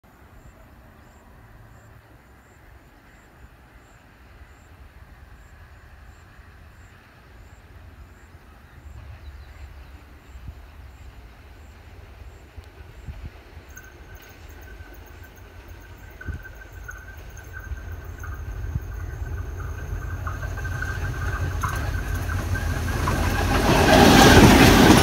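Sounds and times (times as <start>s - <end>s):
locomotive low rumble: 7.8s - 25.0s.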